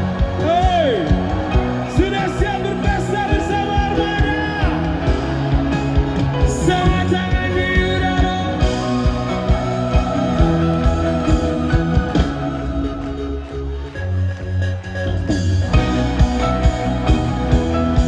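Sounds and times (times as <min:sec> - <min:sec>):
steady drum beat: 0:00.0 - 0:13.3
live pop-rock band: 0:00.0 - 0:18.0.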